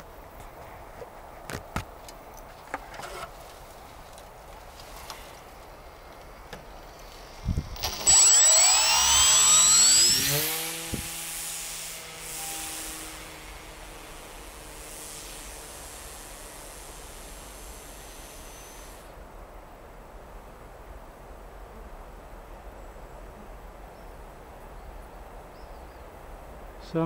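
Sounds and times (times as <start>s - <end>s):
footsteps through long grass: 3.3s - 7.3s
model glider motor whine: 7.3s - 19.2s.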